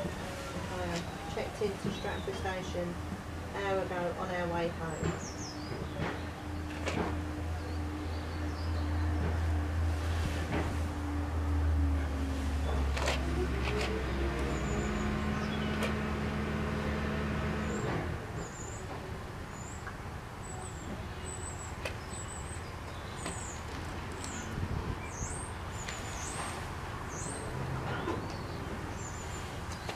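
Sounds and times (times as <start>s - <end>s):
steady background noise: 0.0s - 29.9s
small birds chirping: 4.8s - 6.8s, 19.6s - 29.9s.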